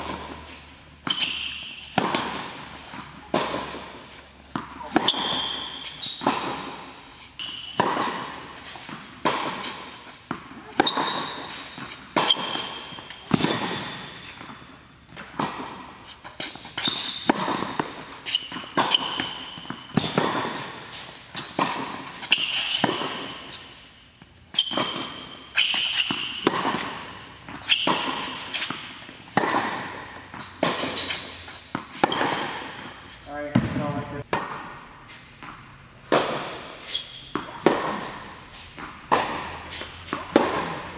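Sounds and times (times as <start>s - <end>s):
racket hitting tennis ball: 0.0s - 40.9s
shoes squeaking on court: 0.0s - 40.9s
tennis ball bouncing: 0.0s - 40.9s.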